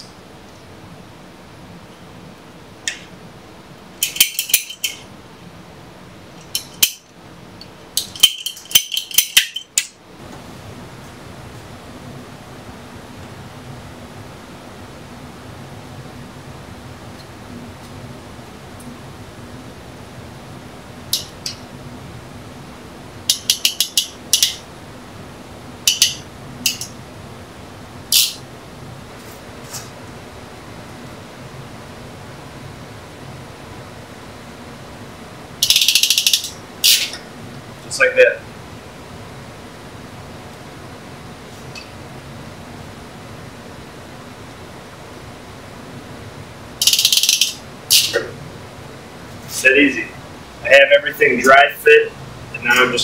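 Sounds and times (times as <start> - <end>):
metallic tool clicks: 4.0 - 5.0, 8.0 - 9.9, 23.3 - 24.6, 35.6 - 37.2, 46.8 - 48.2.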